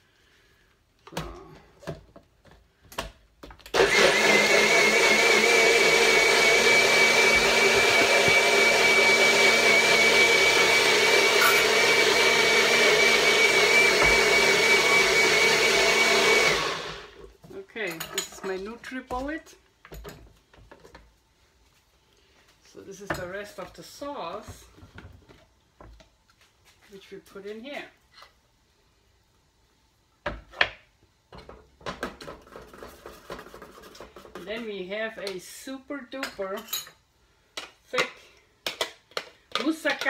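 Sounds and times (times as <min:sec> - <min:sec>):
blender motor whining: 0:03.7 - 0:17.2.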